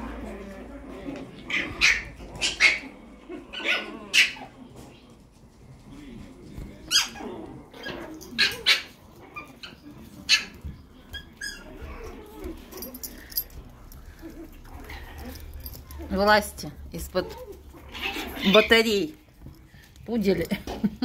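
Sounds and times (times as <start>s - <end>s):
puppies yipping and squealing: 1.4s - 4.6s, 6.9s - 13.4s, 17.2s - 18.8s.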